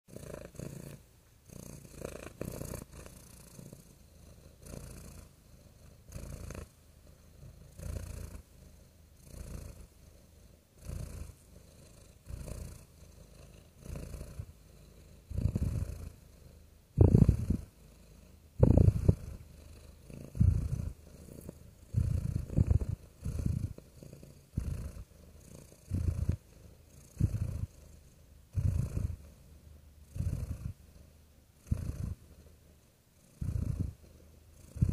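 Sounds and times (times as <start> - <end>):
cat purring: 0.1 - 34.9.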